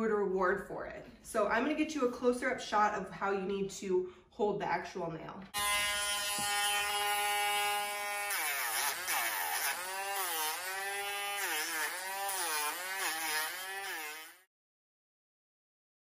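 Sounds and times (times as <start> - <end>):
rotary tool grinding nail: 5.6 - 14.5.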